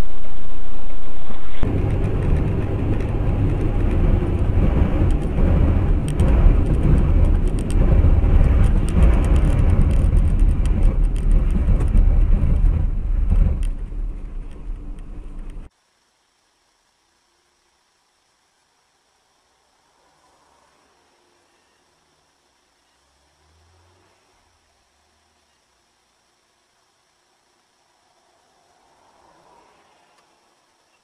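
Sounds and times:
car road and engine rumble: 0.0s - 15.7s.

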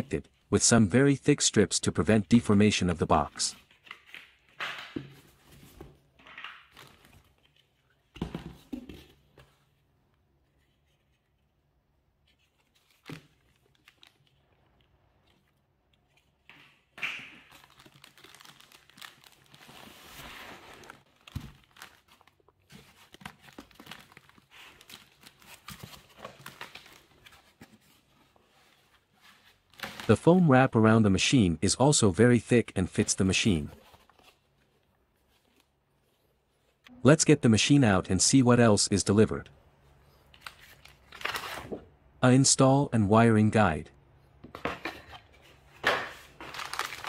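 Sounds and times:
plastic wrapping crinkling: 17.4s - 28.6s, 46.2s - 47.0s.

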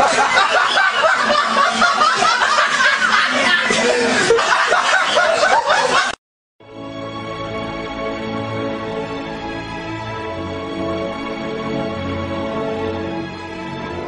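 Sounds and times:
laughter and chuckling: 0.0s - 6.2s
quiet music: 6.6s - 14.0s.

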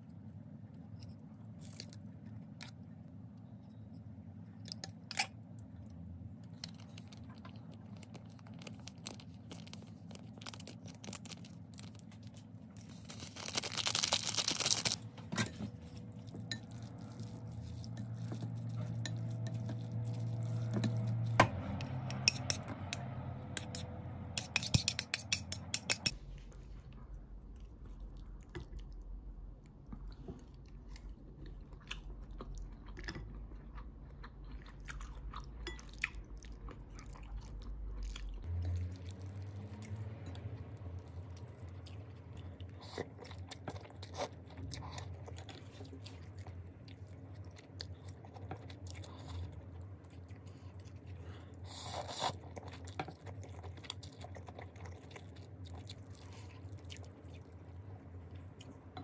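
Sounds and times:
low hum: 0.0s - 43.5s
utensils clinking against bowl: 24.4s - 26.2s.

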